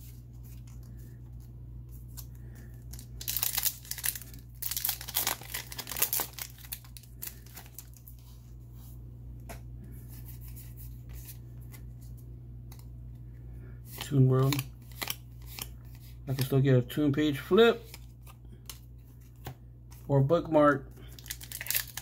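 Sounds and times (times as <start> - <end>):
wrapper tearing and crinkling: 2.9 - 8.2, 21.1 - 22.0.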